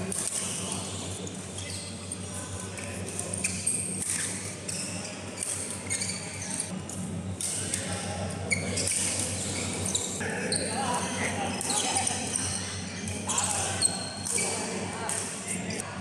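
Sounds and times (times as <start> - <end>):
steady low hum: 0.0 - 16.0
shoes squeaking on court: 0.2 - 6.8, 7.7 - 15.8
faint voices: 7.6 - 16.0.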